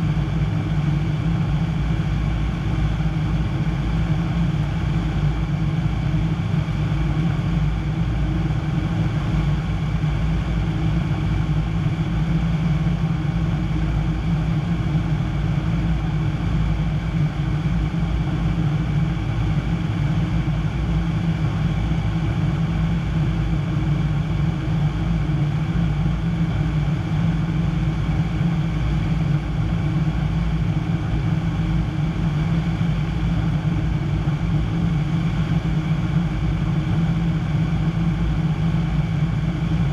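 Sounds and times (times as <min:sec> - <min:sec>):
airplane engine droning in cockpit: 0:00.0 - 0:39.9.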